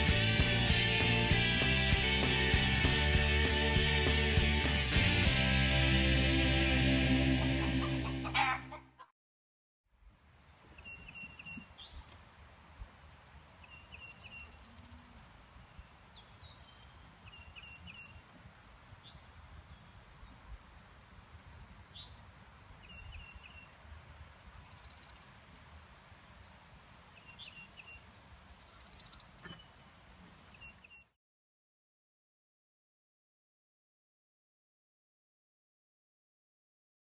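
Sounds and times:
low rumble of wind: 0:10.0 - 0:30.9
songbirds singing: 0:10.7 - 0:12.2, 0:13.6 - 0:18.4, 0:19.0 - 0:20.7, 0:21.9 - 0:23.8, 0:24.5 - 0:25.8, 0:26.5 - 0:29.8, 0:30.5 - 0:31.1.

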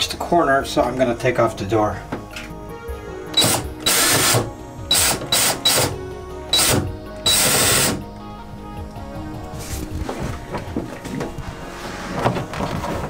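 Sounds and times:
cordless drill running in bursts: 0:03.4 - 0:05.9, 0:06.5 - 0:08.0.

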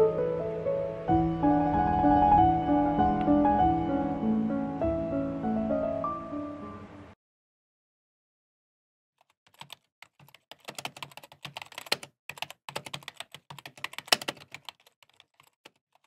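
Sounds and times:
keyboard typing: 0:09.2 - 0:16.0.

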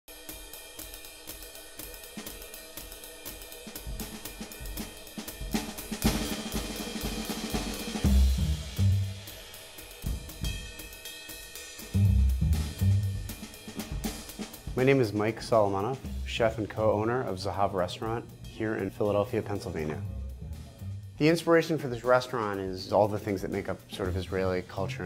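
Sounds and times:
bass drum and bass hits: 0:03.7 - 0:09.4, 0:10.0 - 0:10.8, 0:11.8 - 0:15.0, 0:18.5 - 0:21.4.

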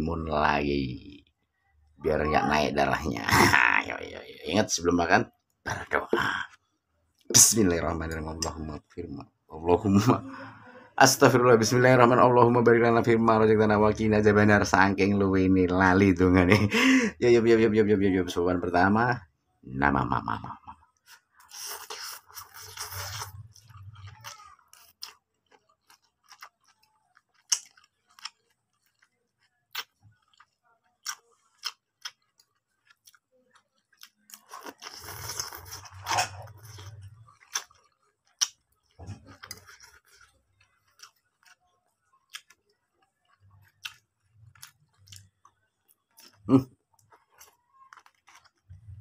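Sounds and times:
chewing: 0:20.2 - 0:49.0
person slurping noodles: 0:21.4 - 0:24.0
wet mouth clicks: 0:34.0 - 0:38.6.

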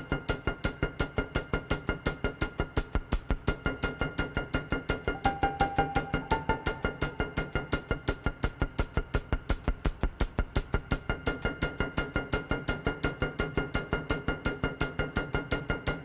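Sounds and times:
fast percussive clicking beat: 0:00.0 - 0:16.0
held high tone: 0:05.2 - 0:07.5.

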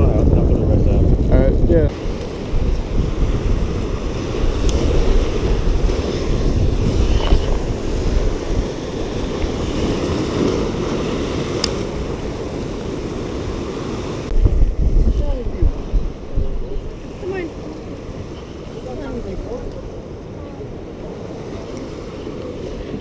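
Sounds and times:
wind buffeting microphone: 0:00.0 - 0:23.0
surf breaking among rocks: 0:01.7 - 0:19.9.

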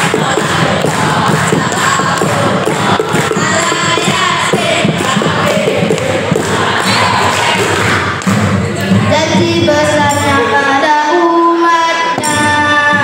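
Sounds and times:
hand clapping: 0:00.0 - 0:08.9
boys singing together: 0:00.0 - 0:13.0.

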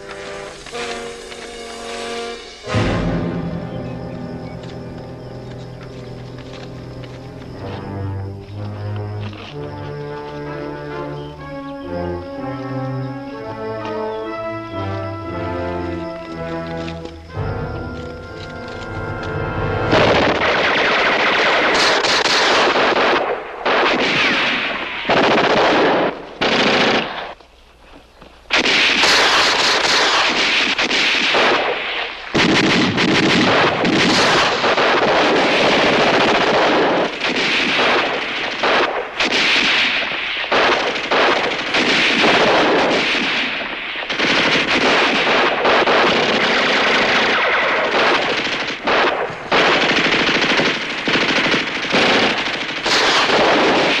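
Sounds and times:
single gunshots: 0:19.8 - 0:27.4, 0:28.5 - 0:54.0
automatic gunfire bursts: 0:19.9 - 0:27.4, 0:28.5 - 0:54.0.

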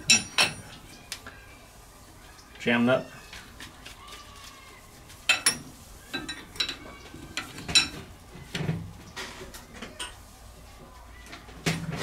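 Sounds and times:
wrench clinking on metal: 0:00.1 - 0:00.6.

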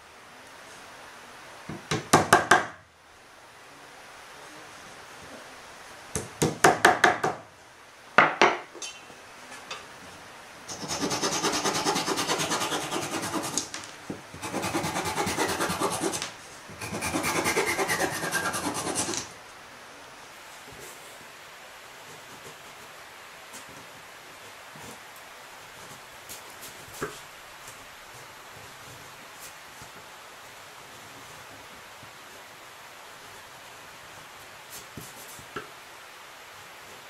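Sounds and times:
hammer knocking on wood: 0:01.7 - 0:02.8, 0:06.2 - 0:07.4, 0:08.2 - 0:08.7
hand saw cutting wood: 0:10.7 - 0:13.7, 0:14.4 - 0:19.3.

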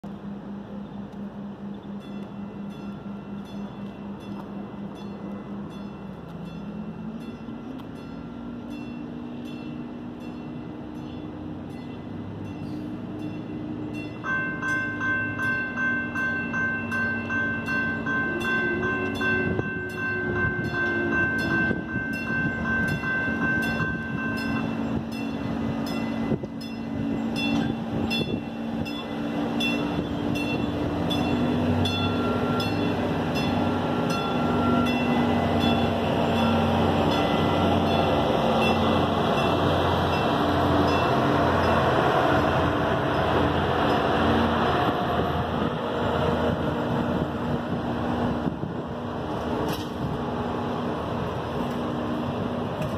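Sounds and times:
diesel train engine drone: 0:00.0 - 0:52.9
railroad crossing bells ringing: 0:00.0 - 0:52.9
train horn: 0:17.2 - 0:39.6.

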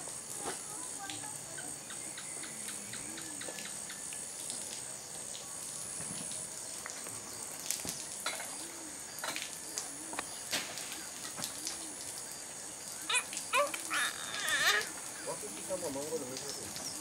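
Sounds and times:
insect chirring: 0:06.2 - 0:17.0.

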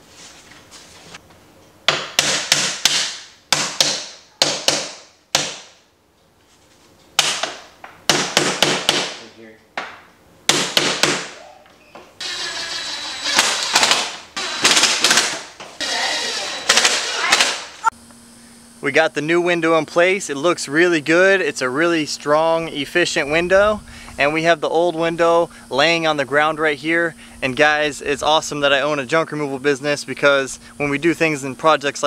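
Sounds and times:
hammer striking window frame: 0:01.9 - 0:05.7, 0:07.2 - 0:09.2, 0:10.5 - 0:11.4.

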